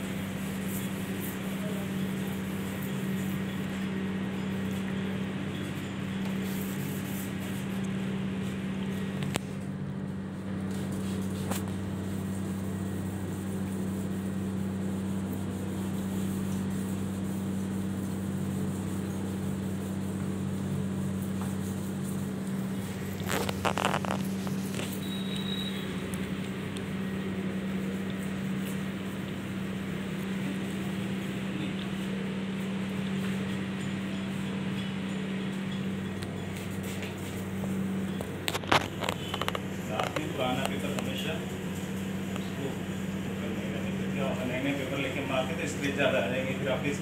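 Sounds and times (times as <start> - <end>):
electric hum with hiss: 0.0 - 33.8.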